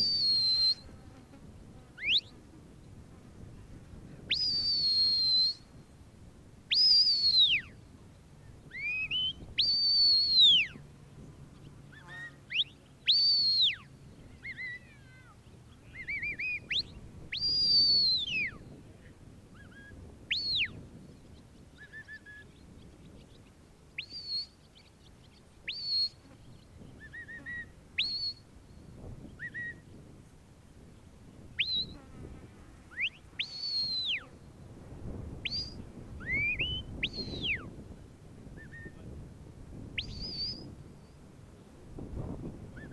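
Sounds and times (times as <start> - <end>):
high whistled commands: 0.0 - 0.9, 4.3 - 5.7, 6.7 - 7.7, 8.8 - 10.7, 12.5 - 13.8, 16.0 - 18.5, 35.5 - 37.7, 40.0 - 40.7.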